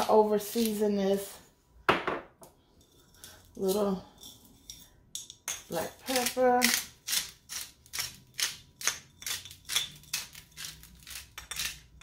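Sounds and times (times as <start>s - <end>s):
pepper grinder crunching: 6.0s - 12.0s.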